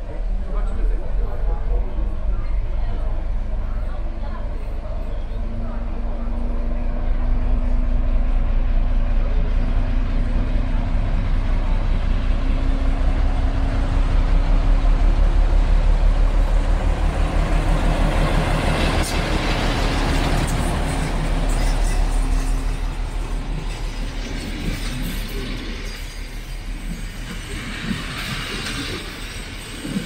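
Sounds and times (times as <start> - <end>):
diesel locomotive engine drone: 0.0 - 30.0.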